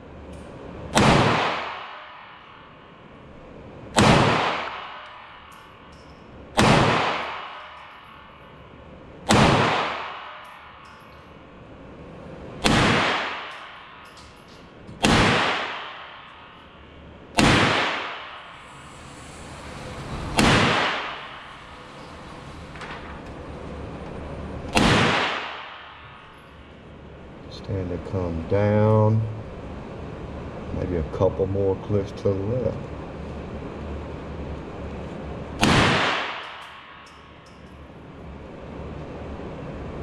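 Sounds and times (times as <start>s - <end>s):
pistol shots with echo: 0.9s - 2.4s, 3.9s - 5.4s, 6.6s - 8.0s, 9.2s - 10.7s, 12.6s - 14.1s, 15.0s - 16.6s, 17.3s - 18.4s, 20.4s - 21.2s, 24.7s - 26.2s, 35.6s - 37.2s.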